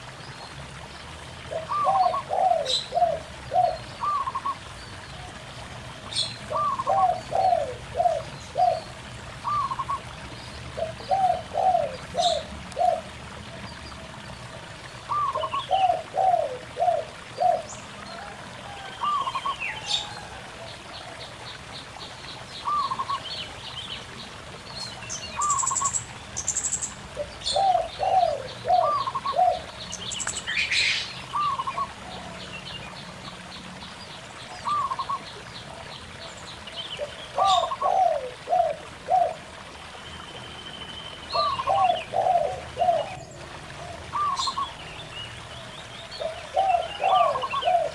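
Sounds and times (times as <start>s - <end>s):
shallow stream rushing: 0.0s - 47.9s
doves cooing: 1.4s - 4.7s, 6.4s - 10.1s, 10.8s - 13.4s, 15.0s - 21.2s, 27.2s - 29.8s, 37.0s - 39.7s, 41.4s - 44.8s, 46.2s - 47.9s.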